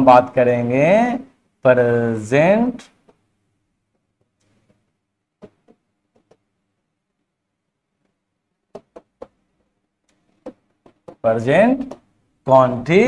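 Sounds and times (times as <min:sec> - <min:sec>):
stylus tapping on screen: 0:05.4 - 0:06.5, 0:08.0 - 0:12.1.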